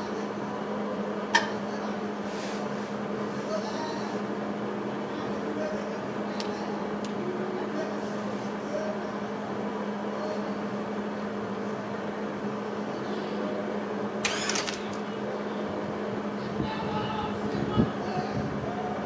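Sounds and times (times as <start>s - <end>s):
welder electrical hum: 0.0s - 19.0s
welding arc crackling: 14.2s - 15.0s.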